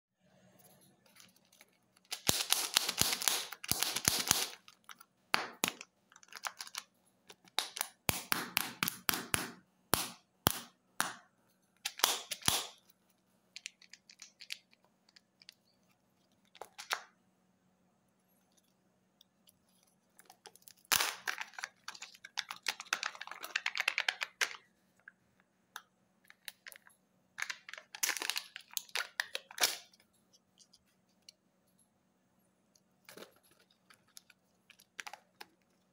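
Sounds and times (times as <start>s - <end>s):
plastic wrapper crackling: 27.4s - 29.9s.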